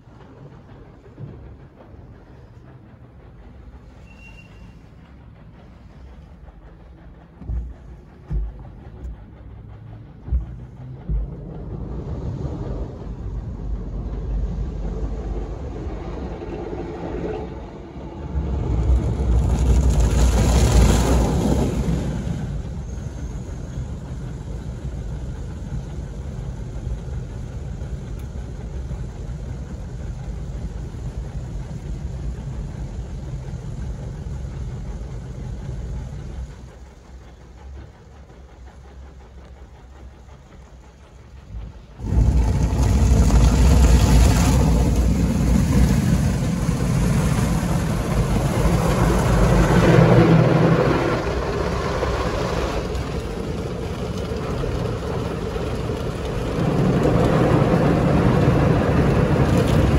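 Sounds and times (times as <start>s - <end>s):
automatic car wash running: 5.5s - 59.9s.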